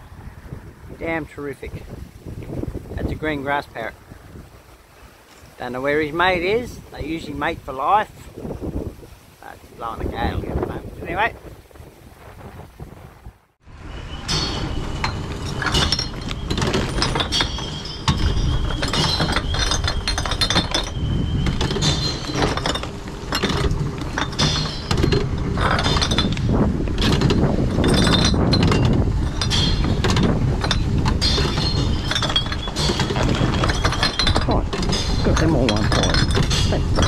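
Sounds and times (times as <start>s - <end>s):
glass bottles clinking: 14.2s - 37.0s.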